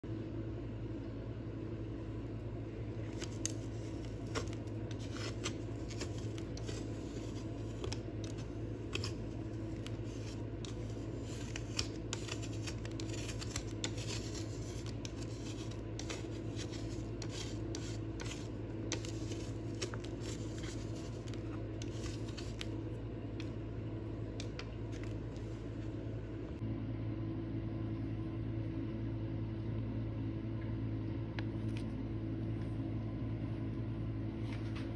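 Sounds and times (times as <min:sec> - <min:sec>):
low hum: 0:00.0 - 0:34.9
palette knife scraping plastic tray: 0:03.2 - 0:22.8.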